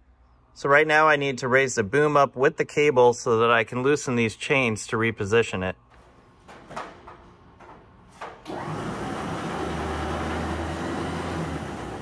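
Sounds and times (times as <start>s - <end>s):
light clicks and knocks: 5.9s - 8.5s
electric winch running: 7.6s - 12.0s.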